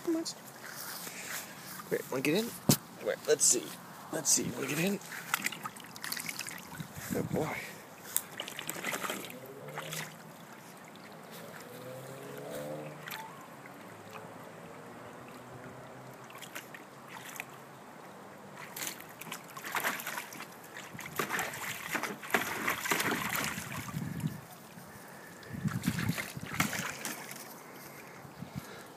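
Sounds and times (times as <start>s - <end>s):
water splashing in a pool: 4.3s - 27.8s
dog lapping water: 5.1s - 7.1s, 8.0s - 11.7s, 16.2s - 17.6s, 18.6s - 24.7s, 25.6s - 27.4s.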